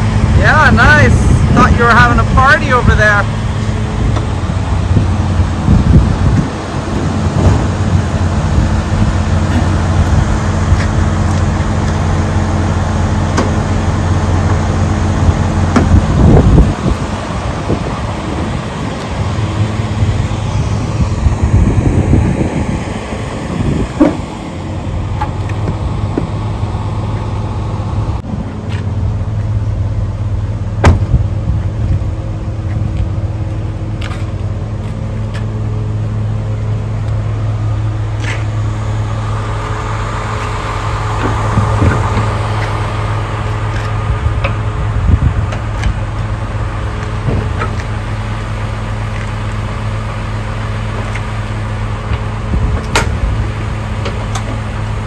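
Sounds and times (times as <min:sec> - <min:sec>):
diesel truck engine idling: 0:00.0 - 0:55.0
sharp knocks and clanks: 0:24.0 - 0:24.3.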